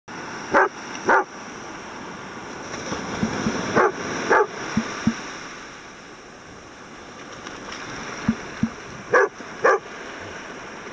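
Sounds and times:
surf washing: 0.1 - 10.9
dog barking: 0.5 - 1.3, 3.8 - 4.6, 9.1 - 9.8.

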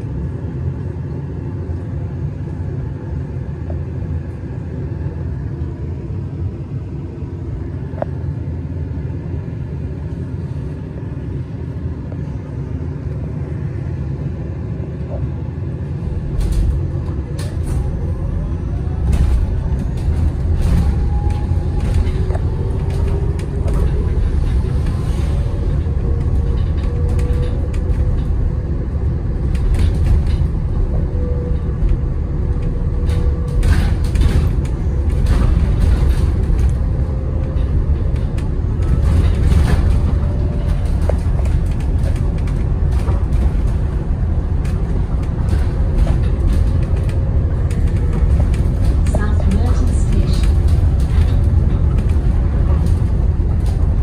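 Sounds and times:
bus road rumble: 0.0 - 54.0
rattles and knocks: 18.9 - 54.0.

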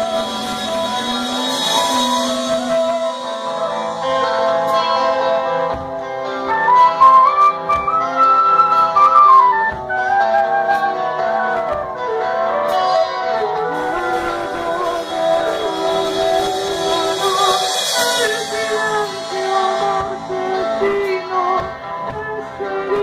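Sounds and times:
electric guitar: 0.0 - 23.0
wooden flute playing: 6.4 - 16.3
woman singing: 13.7 - 23.0.

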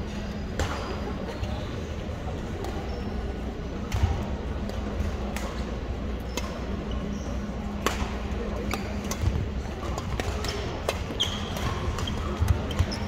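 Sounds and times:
racket hitting shuttlecock: 7.8 - 13.0.

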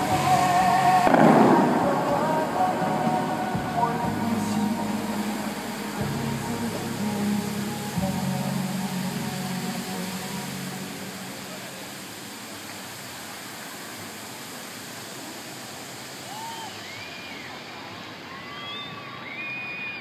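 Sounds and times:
fountain water jets hissing: 0.0 - 19.9.

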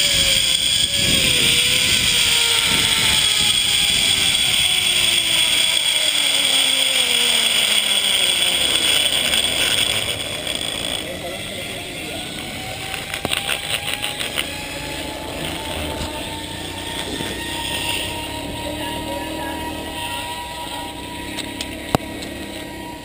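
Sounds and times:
wind noise on microphone: 0.0 - 6.6, 12.4 - 18.8
pulley wheels whirring on cable: 0.0 - 23.0.

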